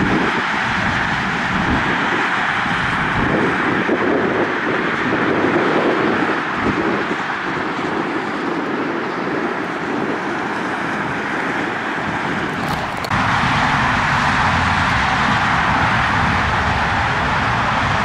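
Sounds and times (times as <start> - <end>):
jet engine rushing: 11.6 - 18.0.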